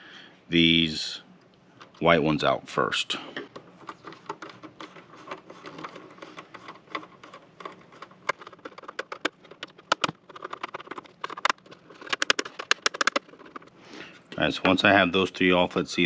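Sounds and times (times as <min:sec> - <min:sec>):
screwdriver clicking and scraping: 0:03.5 - 0:13.7.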